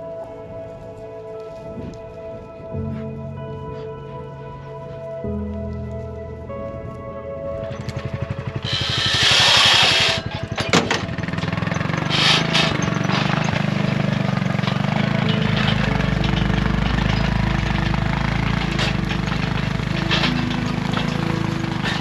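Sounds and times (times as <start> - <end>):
utility vehicle engine running: 5.3 - 22.0
knocks and clunks: 7.6 - 22.0.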